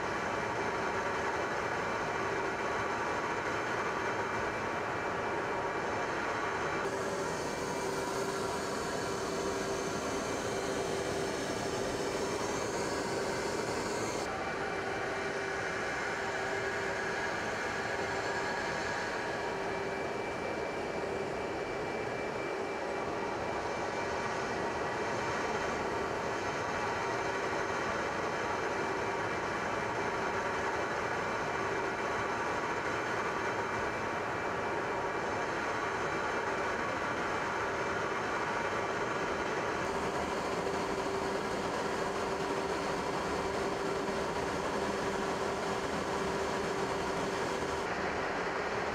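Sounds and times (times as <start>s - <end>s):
aircraft engine drone: 5.0s - 28.4s, 38.5s - 48.9s.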